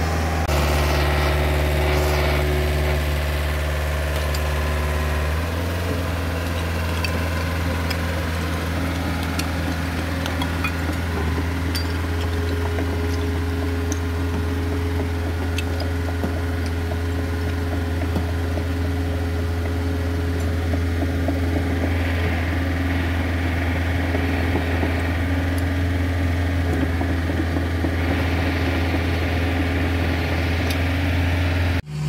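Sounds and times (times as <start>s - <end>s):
diesel engine droning: 0.0s - 32.0s.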